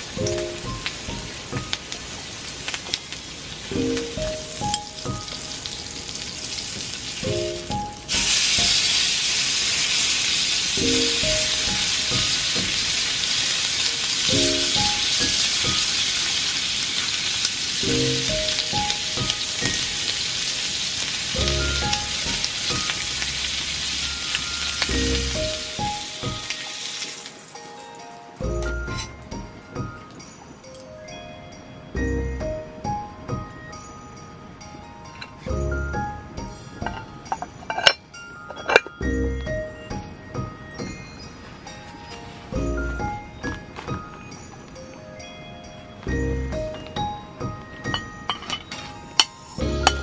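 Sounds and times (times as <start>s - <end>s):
duck fat sizzling in skillet: 0.0s - 27.8s, 49.2s - 50.0s.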